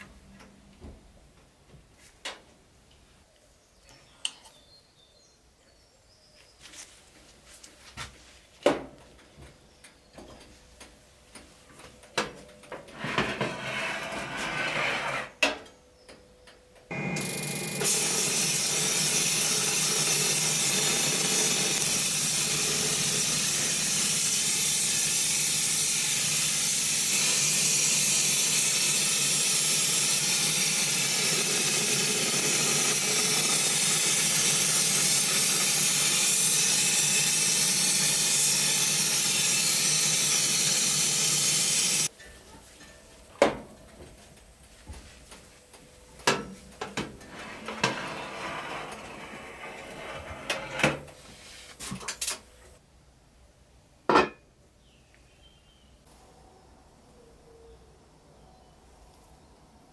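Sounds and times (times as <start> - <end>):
powder coating gun hissing: 17.6 - 42.1.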